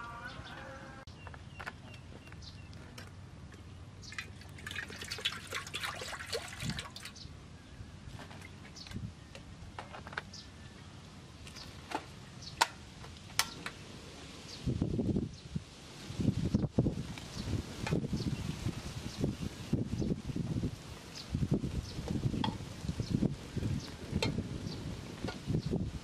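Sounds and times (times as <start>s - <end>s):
water pouring into metal pot: 4.1s - 7.1s.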